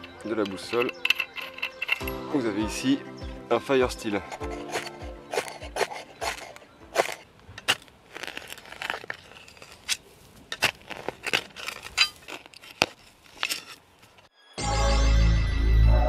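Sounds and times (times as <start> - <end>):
loose earth crunching: 0.0 - 14.3
shovel blade chopping soil: 4.2 - 13.9.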